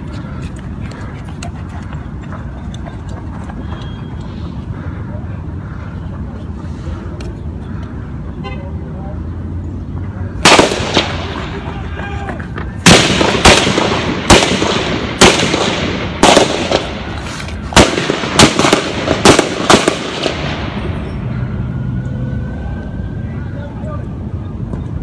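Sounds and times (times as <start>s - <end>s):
gunshots with echo: 10.4s - 11.7s, 12.8s - 17.1s, 17.7s - 20.8s.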